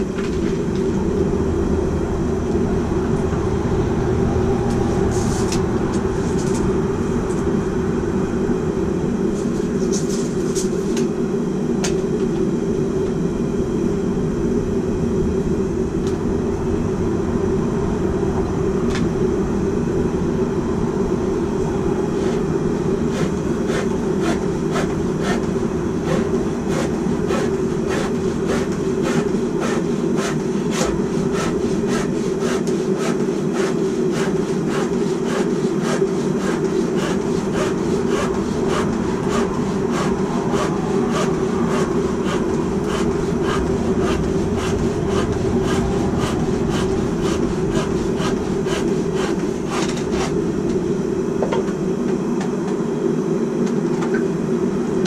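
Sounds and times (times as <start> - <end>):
steady low roar: 0.0 - 30.2, 34.0 - 51.4
hand saw cutting wood: 23.1 - 50.4.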